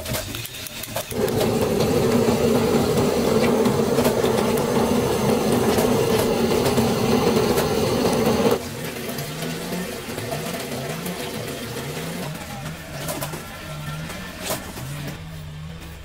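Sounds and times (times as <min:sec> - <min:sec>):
motor humming: 0:01.1 - 0:08.6.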